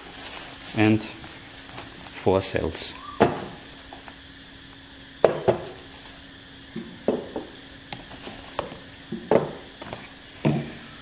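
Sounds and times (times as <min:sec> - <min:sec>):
battery cells knocking on wooden table: 0:06.8 - 0:10.7.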